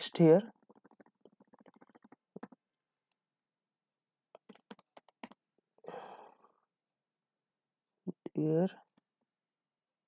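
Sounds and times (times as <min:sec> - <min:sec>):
computer keyboard keystrokes: 0:00.1 - 0:02.6, 0:04.4 - 0:05.4.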